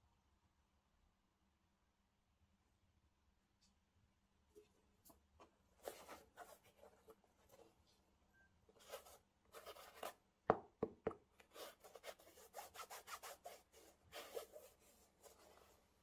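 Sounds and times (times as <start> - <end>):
gloves rubbing on sneaker mesh: 11.5 - 16.0.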